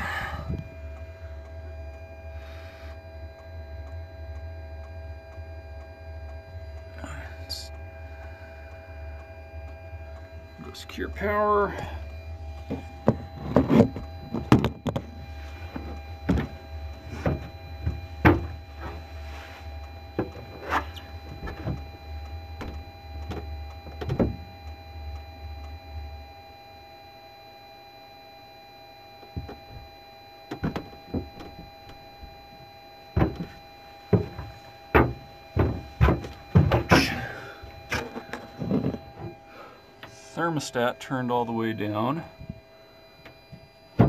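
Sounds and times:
low steady machine hum: 0:00.0 - 0:44.0
scattered knocks and clicks: 0:12.6 - 0:19.0, 0:20.1 - 0:24.8, 0:30.5 - 0:39.4.

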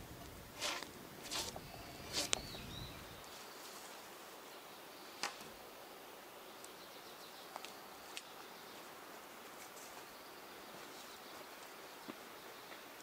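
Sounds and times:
drawknife scraping bark off log: 0:00.6 - 0:02.6.

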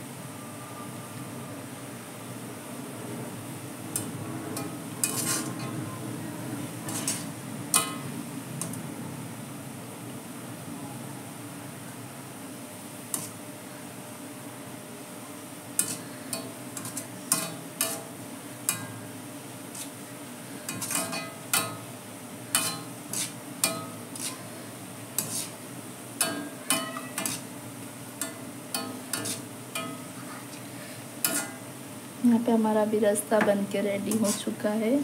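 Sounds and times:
onions frying sizzle: 0:02.2 - 0:10.3, 0:12.2 - 0:35.0
skimmer scraping a pan: 0:04.6 - 0:05.8, 0:06.8 - 0:08.0, 0:15.8 - 0:18.1, 0:19.7 - 0:20.0, 0:20.6 - 0:21.4, 0:22.5 - 0:25.6, 0:26.2 - 0:27.5, 0:28.2 - 0:31.6, 0:34.1 - 0:34.6.

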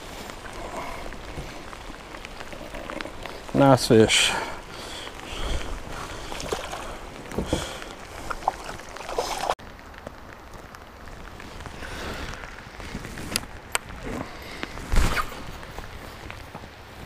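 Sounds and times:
water splashing: 0:00.0 - 0:09.6
rain on water: 0:00.0 - 0:17.0.

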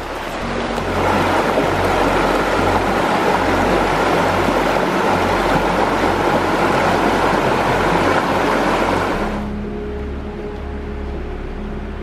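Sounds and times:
creek rushing over rocks: 0:00.0 - 0:09.4.

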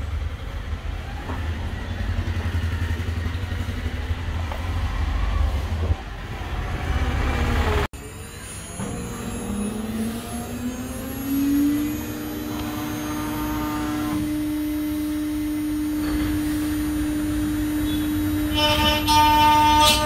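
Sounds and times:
router spindle whine: 0:08.0 - 0:20.0.

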